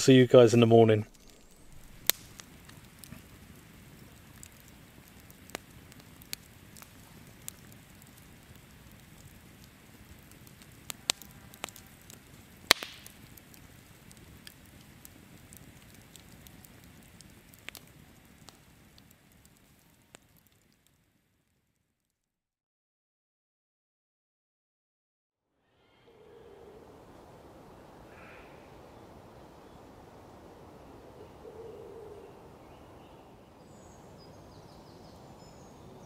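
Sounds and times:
campfire crackling: 0.0s - 22.1s, 26.1s - 36.0s
sharp fire pops: 1.0s - 21.0s.

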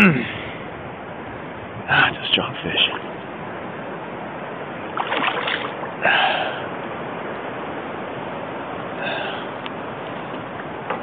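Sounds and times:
fish thrashing and splashing: 4.9s - 5.9s
moving water hiss: 4.9s - 6.9s, 8.8s - 10.4s.

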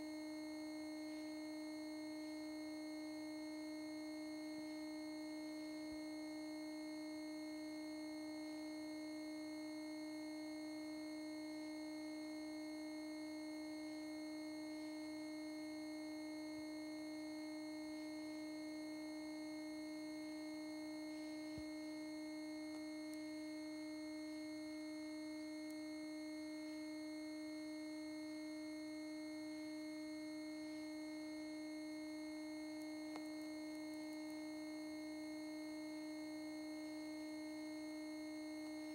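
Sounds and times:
television electronic hum: 0.0s - 38.9s.

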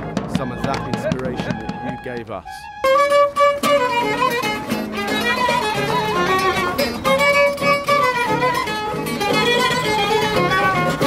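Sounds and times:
violin melody with vibrato: 0.0s - 11.0s
acoustic guitar accompaniment: 2.7s - 11.0s.

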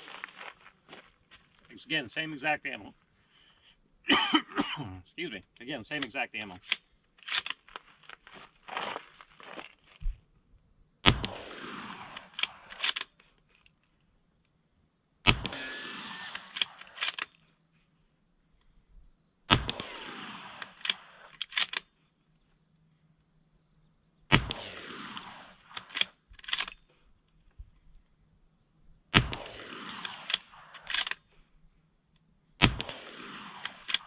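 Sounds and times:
rifle bolt clicking: 5.9s - 7.6s, 12.2s - 13.7s, 16.3s - 17.4s, 20.6s - 21.9s, 25.2s - 26.8s, 30.0s - 31.2s, 33.6s - 34.0s
rifle shots with echo: 11.0s - 13.0s, 15.3s - 17.2s, 19.5s - 21.4s, 24.3s - 26.1s, 29.1s - 31.1s, 32.6s - 34.0s.

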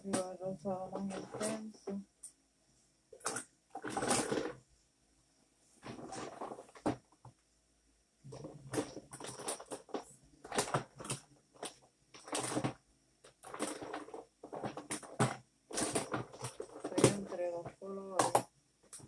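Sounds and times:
rustling of makeup items: 0.0s - 2.0s, 3.2s - 4.6s, 5.8s - 7.2s, 8.3s - 19.0s
light clacking of small items: 8.3s - 19.0s.

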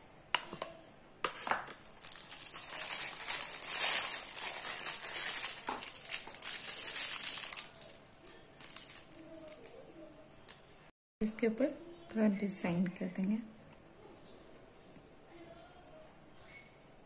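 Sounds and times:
plastic bag crinkling: 1.7s - 9.9s.

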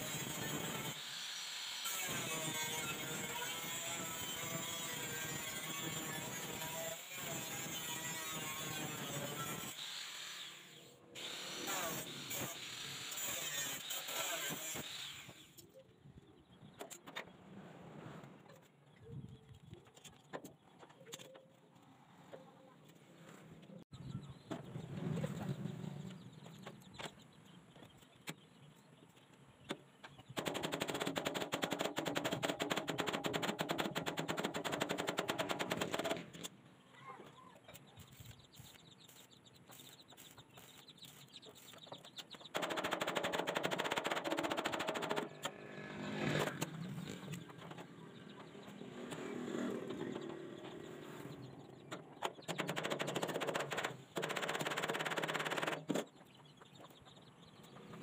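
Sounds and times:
arc welding crackle: 38.1s - 41.8s
fast rattle of sharp clicks: 42.5s - 45.6s, 51.9s - 56.0s.

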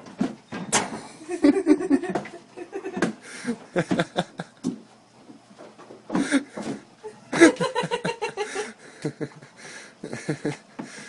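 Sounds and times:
people laughing: 1.3s - 4.6s, 7.1s - 10.6s.

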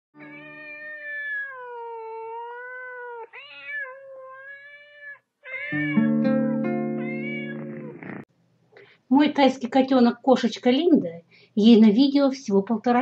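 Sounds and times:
cat meowing: 0.2s - 8.2s
music with held chords: 5.9s - 7.9s.

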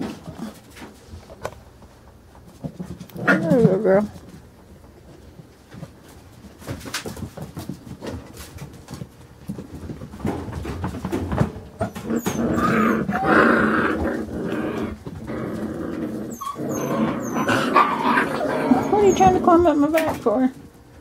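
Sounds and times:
puppies growling in play: 0.0s - 1.4s, 2.5s - 6.0s, 7.2s - 20.1s
puppy yelps: 11.8s - 13.8s, 16.3s - 19.4s.

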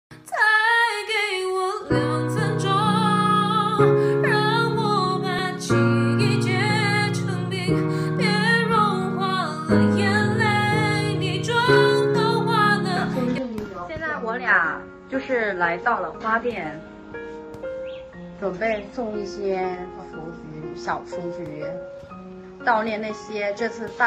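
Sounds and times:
woman singing slow ballad: 0.1s - 13.6s.

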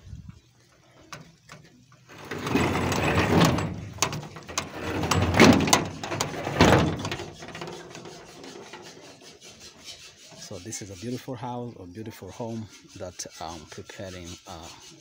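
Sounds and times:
steel sliding gate grinding rumble: 2.1s - 9.2s.

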